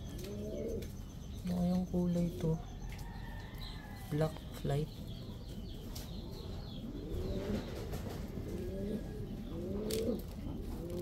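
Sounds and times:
pigeons cooing: 0:00.0 - 0:01.0, 0:05.4 - 0:11.0.

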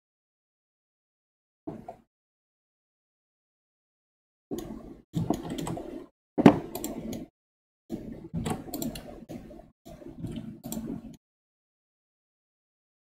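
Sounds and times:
keyboard and mouse clicking: 0:04.5 - 0:07.3, 0:07.9 - 0:11.2.

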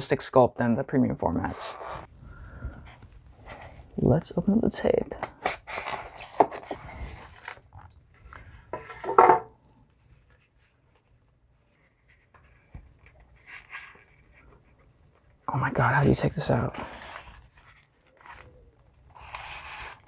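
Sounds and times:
foam scraping and rubbing: 0:01.4 - 0:02.1
faint handling sounds: 0:05.2 - 0:20.0.

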